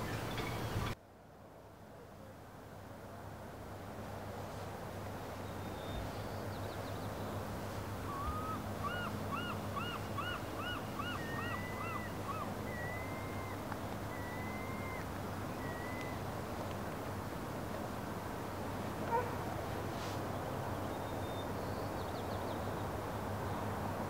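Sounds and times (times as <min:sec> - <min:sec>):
steady low background noise: 0:00.0 - 0:24.0
bird calling: 0:08.0 - 0:16.2.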